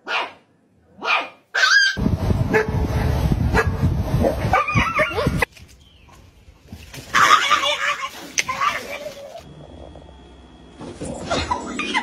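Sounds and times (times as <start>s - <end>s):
loud low rumble: 2.0s - 5.3s
dogs barking and yipping: 3.5s - 5.5s, 7.1s - 9.5s.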